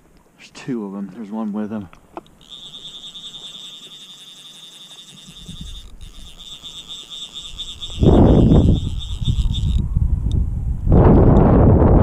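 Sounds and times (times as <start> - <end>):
fishing reel drag buzzing: 2.2 - 10.0
wind rumble on microphone: 7.4 - 12.0.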